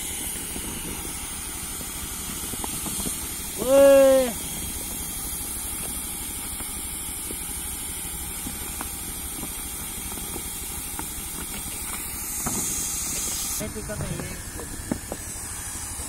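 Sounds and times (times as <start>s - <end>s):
hot-air welding gun hissing: 0.0s - 16.0s
low steady hum: 0.0s - 16.0s.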